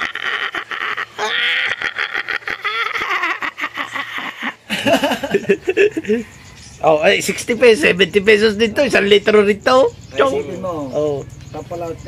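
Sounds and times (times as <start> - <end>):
people laughing: 0.0 - 6.4.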